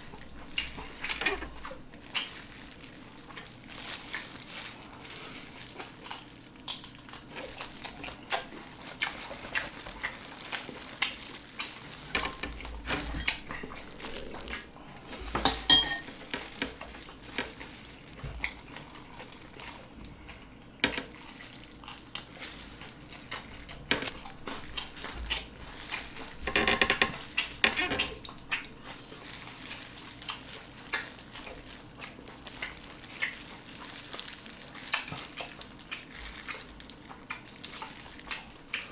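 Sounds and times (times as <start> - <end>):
wet chewing and smacking: 0.0 - 15.4, 16.0 - 38.9
plastic gloves rustling: 0.0 - 38.9
clicks and clinks against dish: 15.4 - 16.1.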